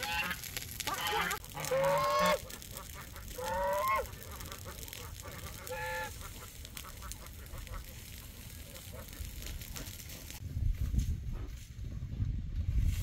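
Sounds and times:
farm bird calling: 0.0 - 10.4.

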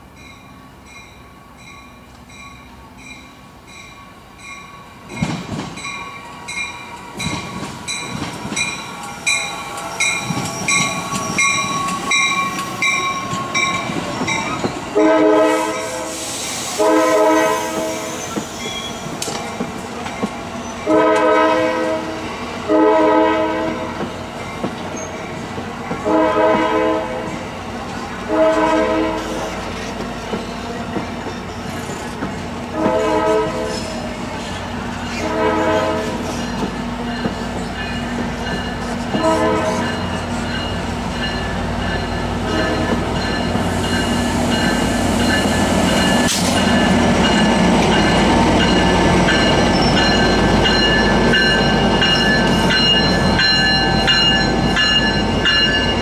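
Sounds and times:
train wheels clacking and rumbling: 4.4 - 56.0
train horn blasts: 14.9 - 18.3, 20.8 - 24.0, 26.0 - 27.4, 28.2 - 29.6, 32.7 - 34.0, 35.1 - 36.4, 39.1 - 40.1, 42.4 - 43.0
bell ringing: 39.8 - 56.0.

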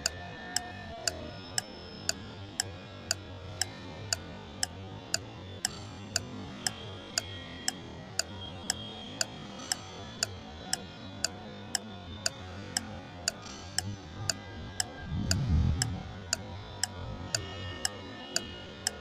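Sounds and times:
clock-like ticking: 9.2 - 19.0.

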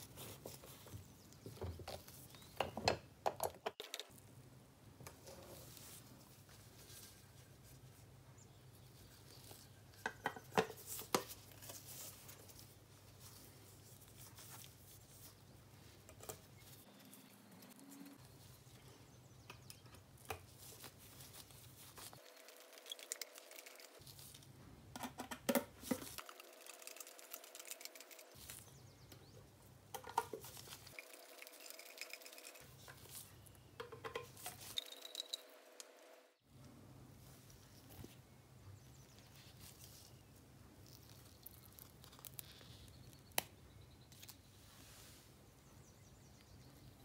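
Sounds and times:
screwdriver clicks and scraping: 33.8 - 35.9.

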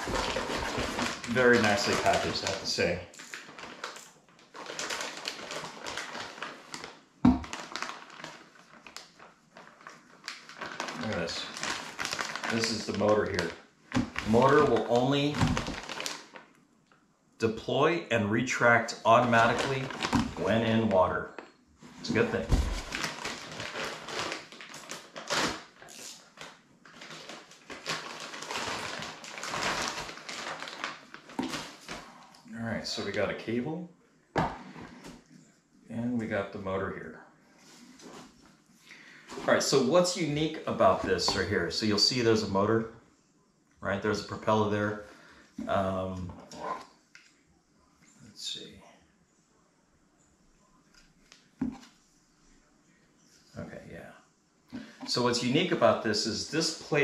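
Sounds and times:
plastic bag crinkling: 0.0 - 16.5, 19.1 - 21.1, 22.0 - 32.3.

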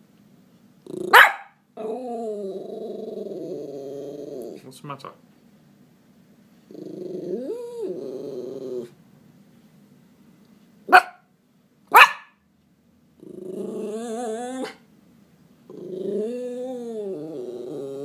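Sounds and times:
dog growling: 0.8 - 4.6, 6.6 - 9.0, 13.2 - 14.8, 15.7 - 18.0
dog barking: 1.1 - 1.6, 10.9 - 11.3, 11.9 - 12.4.

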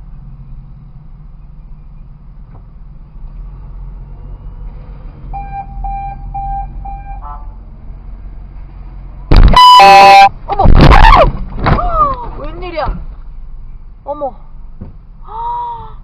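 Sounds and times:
engine idling hum: 0.0 - 10.3
short electronic beeps: 5.3 - 7.3, 9.3 - 10.3
car horn blaring: 5.4 - 7.6, 9.3 - 10.3.

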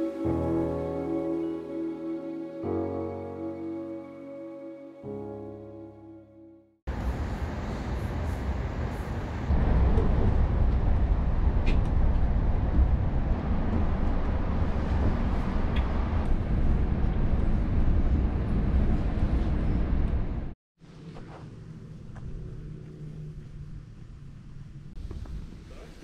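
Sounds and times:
moving vehicle rumble: 6.9 - 26.0.

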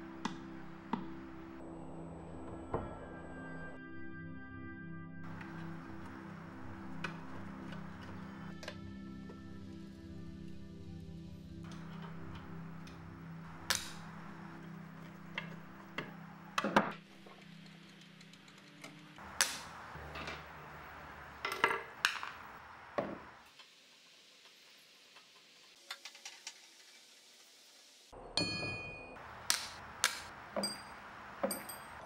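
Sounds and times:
metal clink ringing: 28.4 - 29.2, 30.6 - 32.0.

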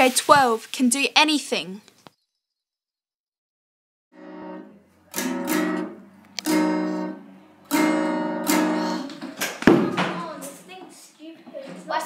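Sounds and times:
acoustic guitar strumming: 4.1 - 9.2.

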